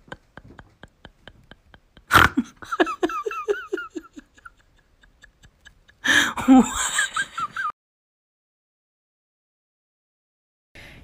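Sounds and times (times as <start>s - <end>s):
woman laughing: 0.0s - 7.7s.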